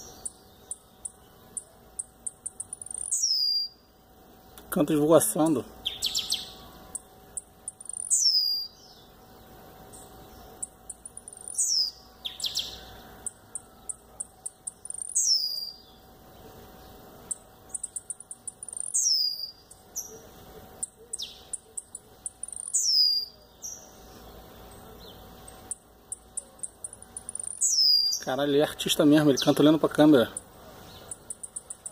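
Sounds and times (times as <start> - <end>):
high bird ticks: 0.0 - 3.3, 5.9 - 8.2, 9.9 - 11.6, 13.2 - 15.3, 17.2 - 22.9, 25.4 - 27.9, 30.2 - 31.9
bird song with falling whistle: 2.9 - 3.8, 8.0 - 8.8, 11.5 - 14.0, 14.8 - 15.9, 18.8 - 20.1, 22.6 - 23.3, 27.3 - 28.2.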